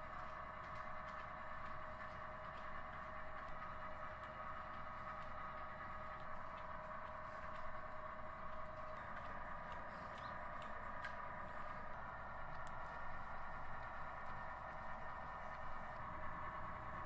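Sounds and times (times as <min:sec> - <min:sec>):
machine hum: 0:00.0 - 0:17.0
faint clicks and taps: 0:00.2 - 0:07.8.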